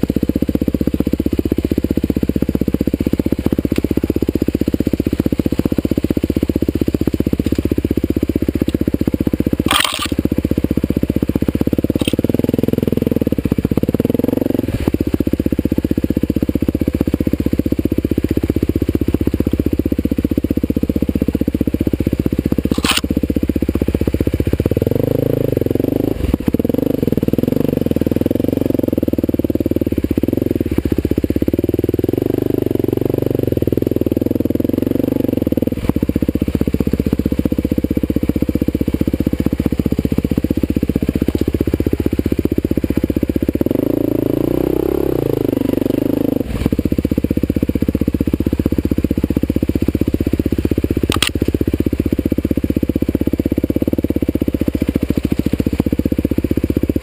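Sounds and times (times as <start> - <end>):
dirt bike engine running: 0.0 - 57.0
short sharp clicks: 9.7 - 10.2, 12.0 - 12.2, 22.7 - 23.1, 51.1 - 51.5.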